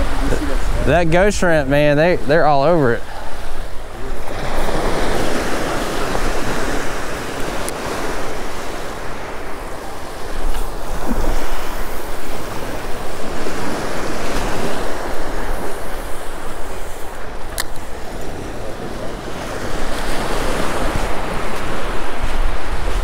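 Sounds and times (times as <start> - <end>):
surf breaking on beach: 0.0 - 23.0
wind buffeting microphone: 0.0 - 23.0.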